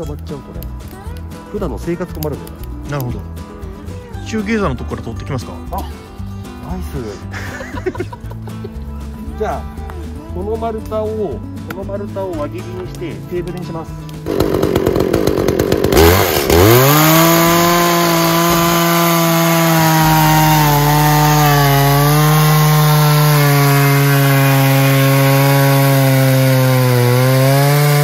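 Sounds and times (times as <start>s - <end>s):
chainsaw cutting log: 14.0s - 28.0s.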